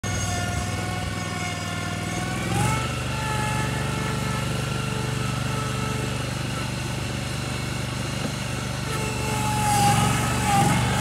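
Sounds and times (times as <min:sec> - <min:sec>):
lawn tractor engine running: 0:00.0 - 0:11.0.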